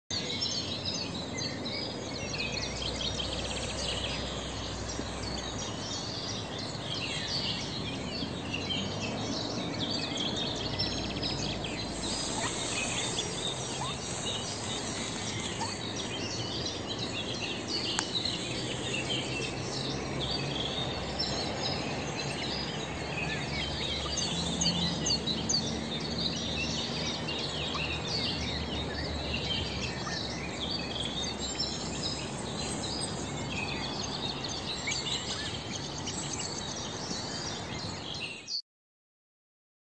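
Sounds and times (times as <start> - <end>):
background hiss: 0.2 - 38.2
high-pitched bird chirps: 11.4 - 16.7.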